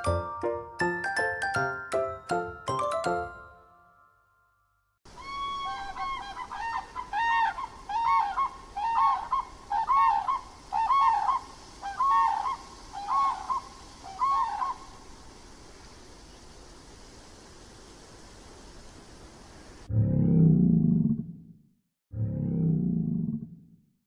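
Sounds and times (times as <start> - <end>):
background hiss: 5.1 - 19.9.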